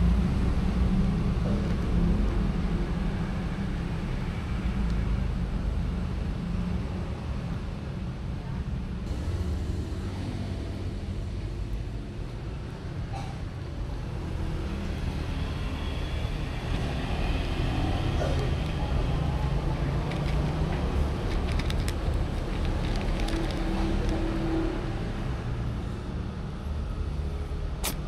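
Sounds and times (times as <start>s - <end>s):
cats eating from plastic bowls: 18.0s - 24.6s.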